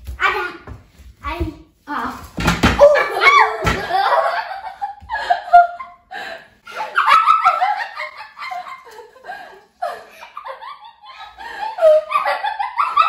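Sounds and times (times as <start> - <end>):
girls giggling and laughing: 2.8 - 13.0.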